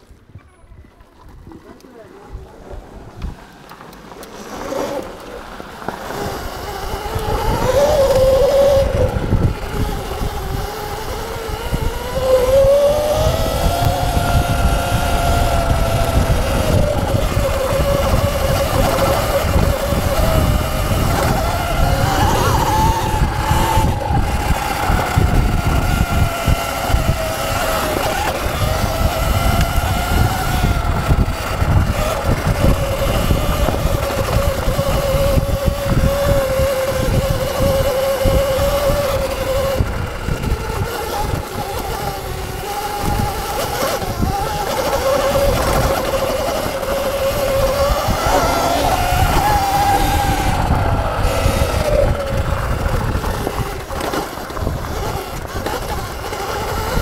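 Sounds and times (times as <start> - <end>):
electric motor whine: 1.0 - 57.0.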